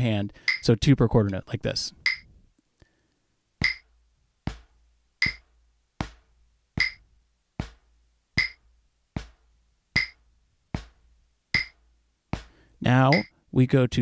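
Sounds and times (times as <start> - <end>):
drumsticks tapping practice pad: 0.4 - 1.4, 2.0 - 2.3, 3.6 - 3.9, 4.5 - 10.2, 10.8 - 11.0, 11.6 - 13.3
metronome click: 0.5 - 0.7, 2.0 - 2.3, 3.6 - 3.8, 5.2 - 5.4, 6.8 - 7.0, 8.4 - 8.6, 10.0 - 10.2, 11.6 - 11.8, 13.1 - 13.3.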